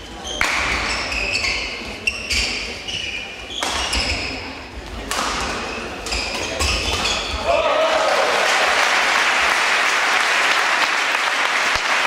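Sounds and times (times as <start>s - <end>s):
shuttlecock hit by racquets: 5.0s - 5.6s.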